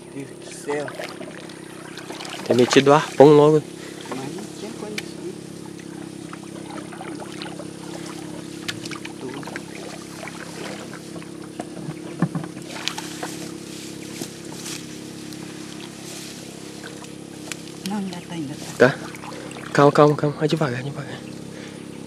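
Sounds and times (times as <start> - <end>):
steady low hum: 0.0 - 22.0
water splashing: 0.5 - 20.3
knocks against canoe: 6.7 - 13.5.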